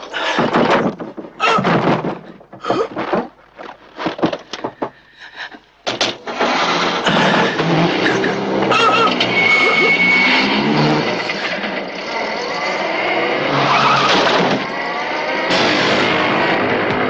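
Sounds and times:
knocks bangs and clatters: 0.0s - 9.4s, 14.0s - 17.0s
vehicle engine running loudly: 7.1s - 17.0s.

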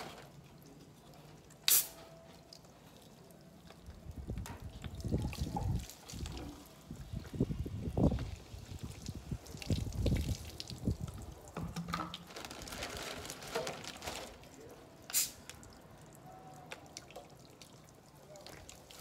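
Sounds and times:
short hiss: 1.7s - 2.0s, 15.1s - 15.5s.

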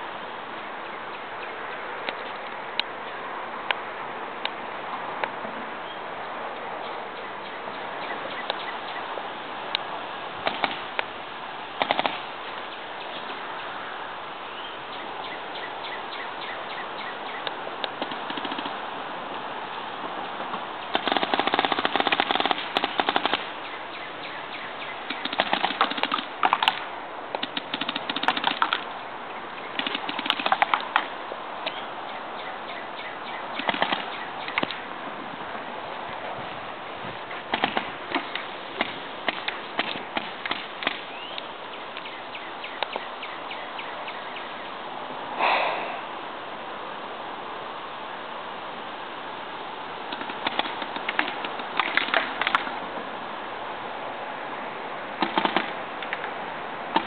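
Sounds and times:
paintball markers firing: 10.4s - 10.8s, 11.8s - 12.2s, 17.9s - 18.8s, 20.9s - 23.4s, 25.1s - 26.8s, 27.4s - 28.8s, 29.8s - 31.1s, 37.5s - 41.0s, 55.2s - 55.8s.

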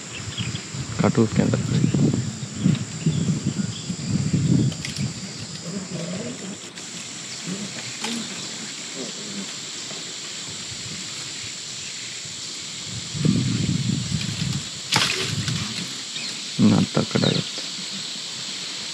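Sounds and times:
insects droning: 0.0s - 18.9s
elephant stripping and chewing branches: 14.1s - 16.4s.

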